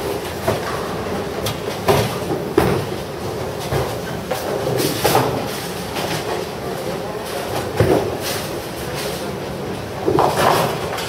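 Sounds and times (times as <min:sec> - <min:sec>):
bowling balls rolling on lanes: 0:09.8 - 0:11.0.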